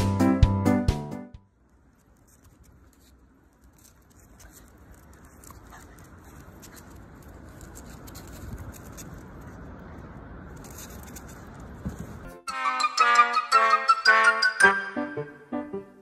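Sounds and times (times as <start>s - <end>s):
outdoor air rumble: 1.5s - 12.4s
dog claws pattering on paving: 1.7s - 12.2s.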